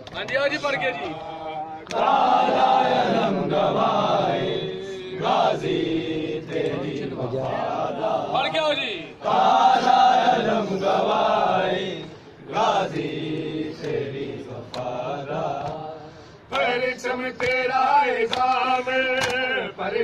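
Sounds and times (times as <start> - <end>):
men chanting a lament: 0.3 - 20.0
hands slapping chests: 14.6 - 15.8, 18.3 - 19.4.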